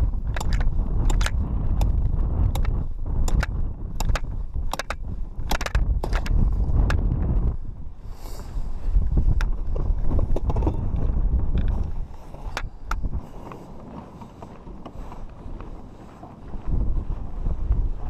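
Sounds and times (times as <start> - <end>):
sharp clicks: 0.0 - 7.1
wind rumble on microphone: 0.0 - 18.0
plastic sled scraping over ice: 9.5 - 18.0.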